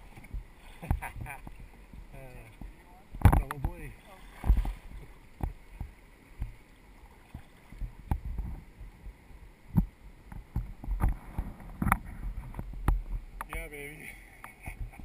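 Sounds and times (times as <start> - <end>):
paddle knocks: 0.0 - 6.6
kayak paddle splashing: 0.0 - 15.0
trickle of moving water: 0.0 - 15.0.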